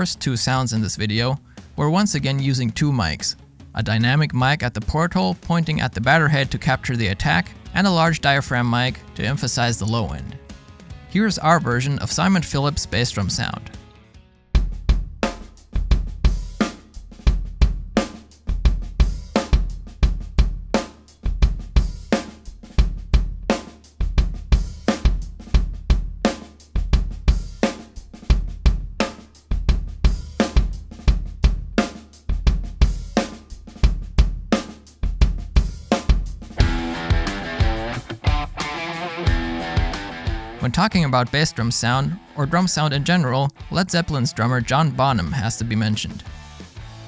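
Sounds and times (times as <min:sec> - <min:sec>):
snare drum: 0:30.2 - 0:34.8, 0:35.5 - 0:40.6.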